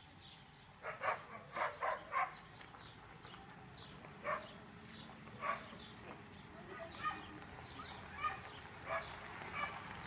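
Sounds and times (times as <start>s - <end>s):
small dog barking: 0.8s - 2.4s, 4.2s - 4.5s, 5.4s - 7.3s, 8.1s - 9.8s.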